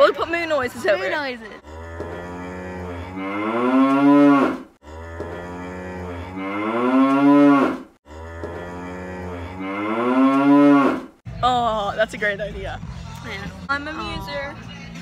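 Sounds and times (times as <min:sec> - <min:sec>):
cow mooing: 0:01.6 - 0:11.1.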